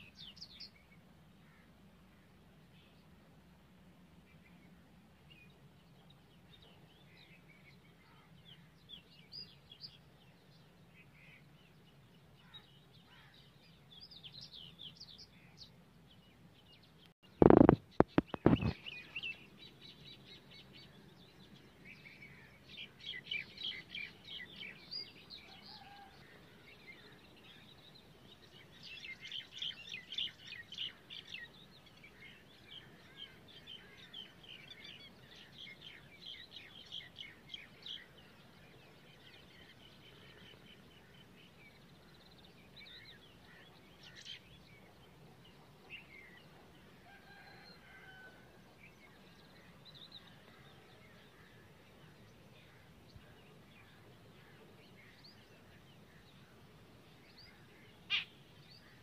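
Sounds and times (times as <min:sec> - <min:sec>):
small birds chirping: 0:04.3 - 0:48.1, 0:48.8 - 0:59.0
loud thumps: 0:17.4 - 0:18.8.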